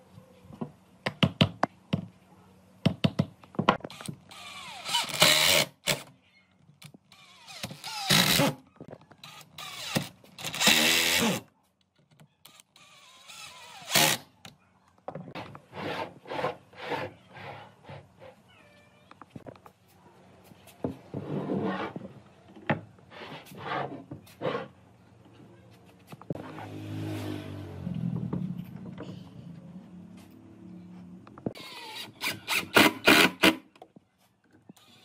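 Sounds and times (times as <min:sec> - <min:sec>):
cordless drill driving screws: 0:03.9 - 0:06.0, 0:07.1 - 0:08.6, 0:09.2 - 0:11.4.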